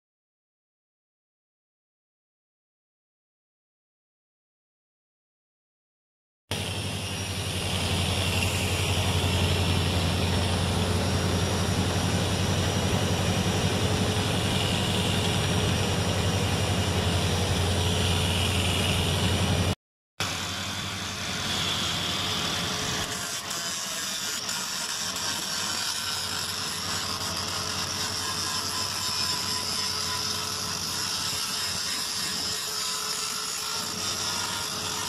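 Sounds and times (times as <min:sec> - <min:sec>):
abrasive wheel grinding metal: 0:06.5 - 0:19.8, 0:20.7 - 0:35.0
power tool humming: 0:06.5 - 0:35.0
quieter tool sound: 0:06.5 - 0:35.0.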